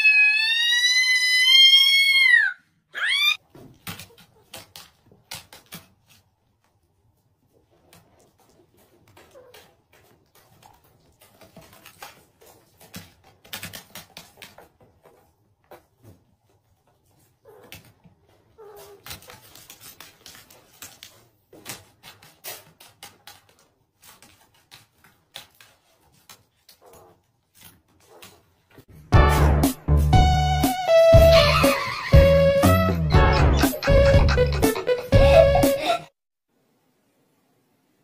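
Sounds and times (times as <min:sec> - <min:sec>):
faint kitten cries: 0:00.0 - 0:03.4
paws scuffling on a mat: 0:03.5 - 0:28.9.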